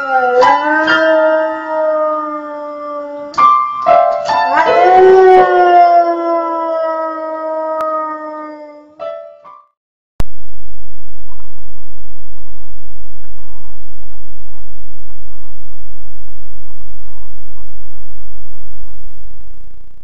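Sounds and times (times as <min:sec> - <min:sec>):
dog howling: 0:00.0 - 0:03.4, 0:04.5 - 0:09.0
steady low hum: 0:10.2 - 0:20.0.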